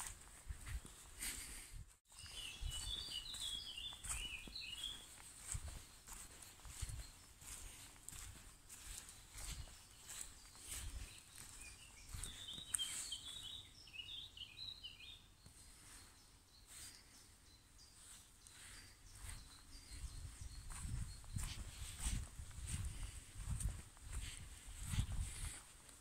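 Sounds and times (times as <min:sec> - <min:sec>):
footsteps on woodland path: 0:00.0 - 0:17.2, 0:17.8 - 0:26.0
songbird chirping: 0:00.0 - 0:26.0.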